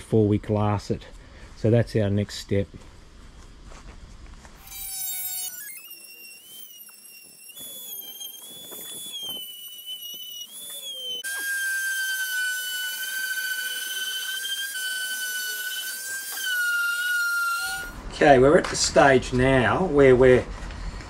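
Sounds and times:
orbital sander whining: 4.6s - 18.0s
rotary tool grinding: 4.6s - 18.0s.

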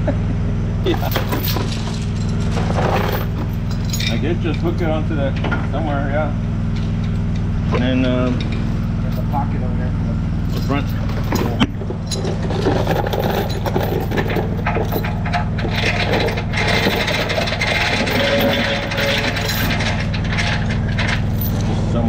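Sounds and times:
engine running: 0.0s - 22.0s
knocks clinks and scraping: 0.9s - 5.7s, 6.7s - 9.5s, 10.4s - 21.8s.

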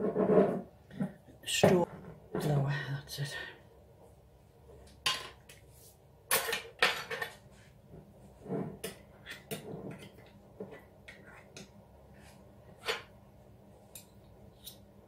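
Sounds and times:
kitchen utensils clinking: 6.3s - 7.4s.

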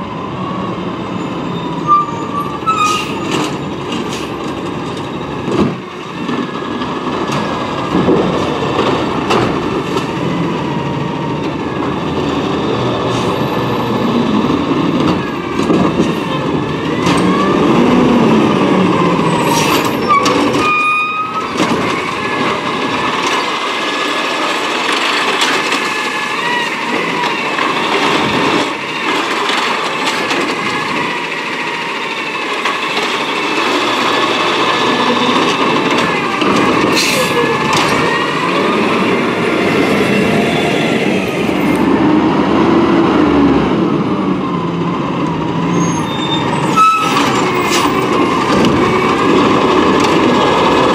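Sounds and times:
high squeal: 1.1s - 3.4s, 19.2s - 22.4s, 45.7s - 48.1s
truck engine running: 21.5s - 40.5s.

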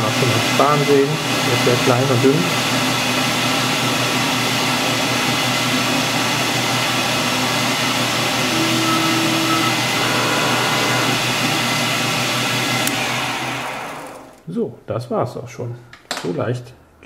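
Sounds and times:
metal lathe whirring: 6.1s - 14.4s
brief higher tone: 8.4s - 11.8s.

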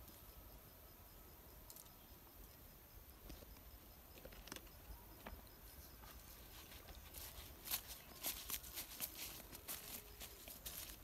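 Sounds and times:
footsteps on dry grass: 6.0s - 11.0s.

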